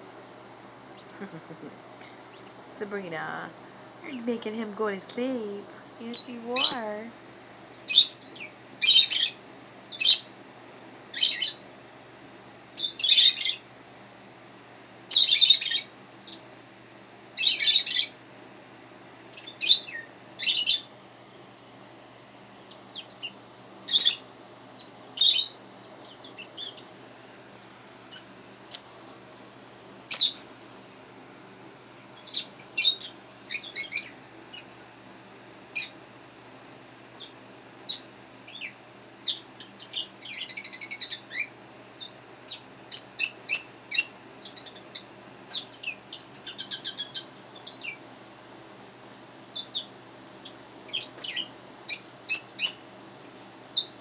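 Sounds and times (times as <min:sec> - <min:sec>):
birds chirping: 0:00.9 - 0:03.5, 0:04.1 - 0:10.3, 0:19.3 - 0:21.8, 0:22.6 - 0:26.9, 0:30.1 - 0:30.4, 0:32.1 - 0:34.7, 0:37.2 - 0:48.2, 0:50.9 - 0:52.8.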